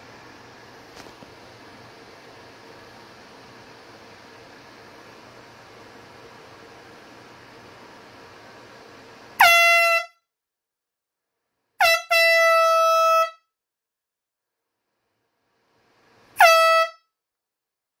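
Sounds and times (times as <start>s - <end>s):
room noise hiss: 0.0s - 10.0s, 14.5s - 16.8s
air horn blasts: 9.4s - 10.2s, 11.8s - 13.5s, 16.4s - 17.1s.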